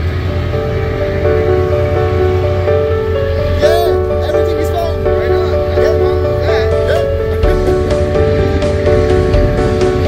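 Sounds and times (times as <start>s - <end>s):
background music with held notes: 0.0s - 10.0s
ferry engine drone: 0.0s - 10.0s.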